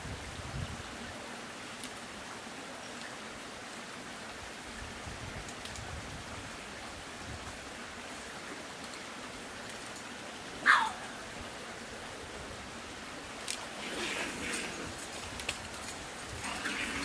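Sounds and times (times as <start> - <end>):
raccoon squealing: 10.6 - 11.2.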